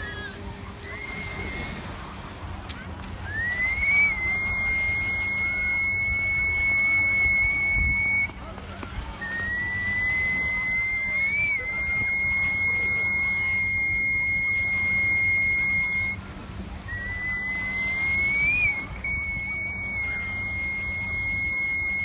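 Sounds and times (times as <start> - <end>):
faint water sloshing: 0.0 - 22.0
high whistle notes: 3.2 - 8.3, 9.2 - 16.2, 16.8 - 22.0.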